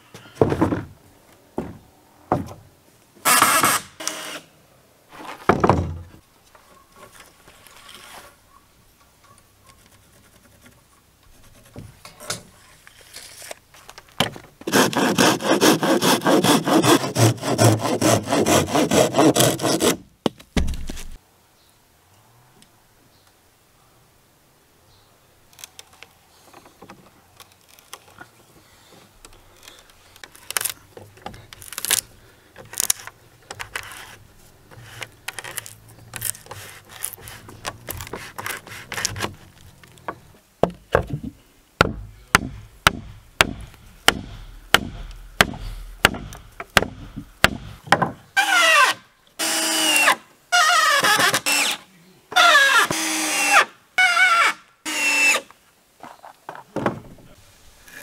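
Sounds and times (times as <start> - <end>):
sharp knocks: 40.6 - 48.2
cordless drill driving screws: 50.7 - 51.8.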